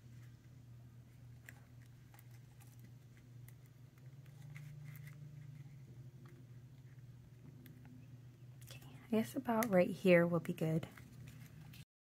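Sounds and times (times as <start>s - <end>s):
steady low hum: 0.0s - 11.8s.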